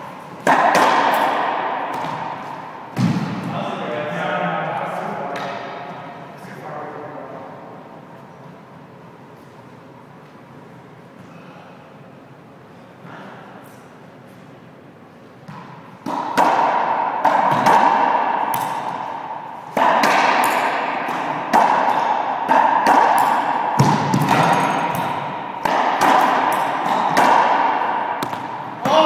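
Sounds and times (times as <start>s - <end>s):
racquetball strikes ringing: 0.4s - 3.5s, 15.4s - 29.0s.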